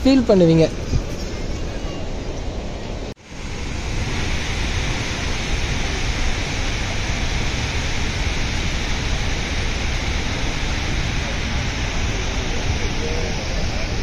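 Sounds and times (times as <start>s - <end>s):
waterfall roaring: 0.0s - 14.0s.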